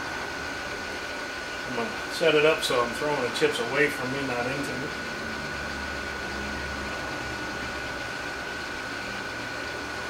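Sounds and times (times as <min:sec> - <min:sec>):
milling machine motor humming: 0:00.0 - 0:10.0.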